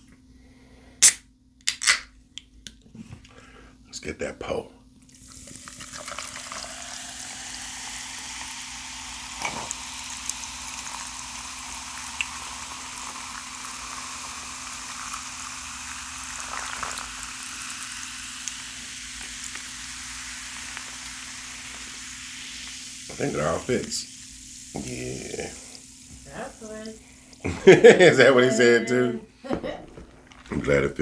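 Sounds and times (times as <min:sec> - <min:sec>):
soda fizzing in a glass: 0:05.1 - 0:27.8.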